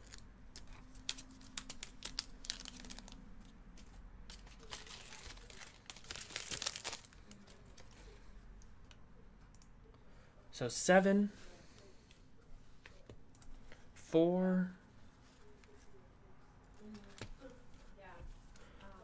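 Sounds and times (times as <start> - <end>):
foil wrappers crinkling: 0.0 - 3.2, 4.3 - 7.9.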